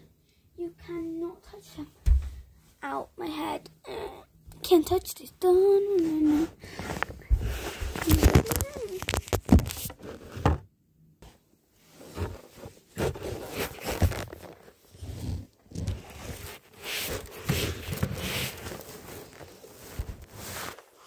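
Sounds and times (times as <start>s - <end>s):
soft knocks and bumps: 2.0s - 2.5s
fabric rustling on microphone: 5.9s - 10.4s, 11.8s - 21.0s.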